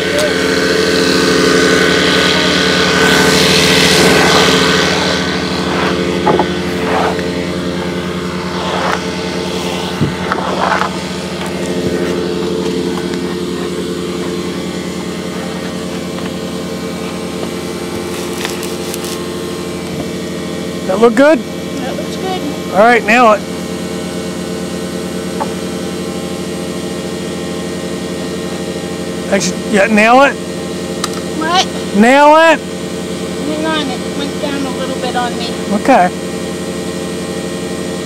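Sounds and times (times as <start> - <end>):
machine motor humming: 0.0 - 38.0
wood slab knocking and scraping: 5.8 - 7.3, 9.8 - 13.3.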